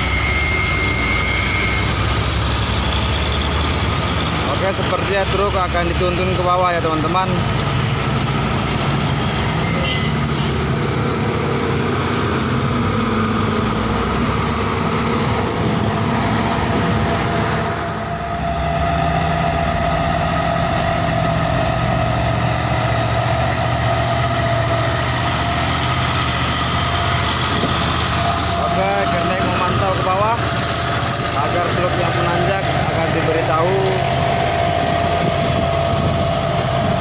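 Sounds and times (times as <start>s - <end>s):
bus passing close by: 0.0s - 37.0s
heavy diesel road traffic: 0.0s - 37.0s
tanker truck passing close by: 0.0s - 37.0s.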